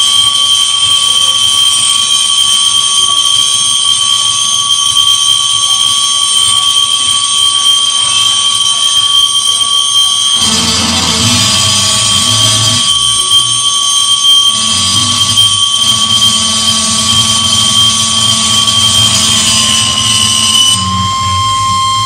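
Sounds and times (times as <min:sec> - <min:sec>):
high-pitched electronic drone: 0:00.0 - 0:22.0
low rumbling noise: 0:15.9 - 0:22.0.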